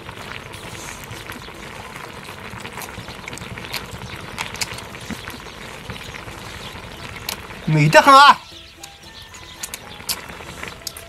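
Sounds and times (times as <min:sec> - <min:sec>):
man sucking and chewing meat: 0:00.0 - 0:05.8
wet smacks and clicks: 0:00.3 - 0:07.7.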